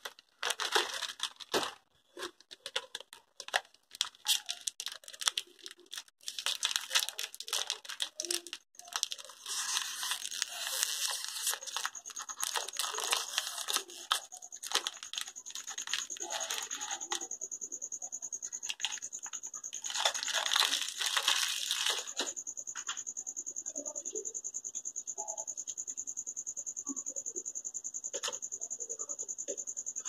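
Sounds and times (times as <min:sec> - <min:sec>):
plastic wrapper tearing: 0:00.0 - 0:17.2, 0:18.6 - 0:22.3
wrapper rustling: 0:00.0 - 0:17.2, 0:18.6 - 0:22.3.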